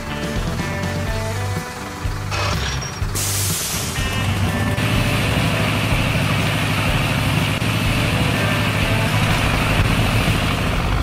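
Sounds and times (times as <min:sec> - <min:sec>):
cartoon bulldozer engine rumble: 0:00.0 - 0:11.0.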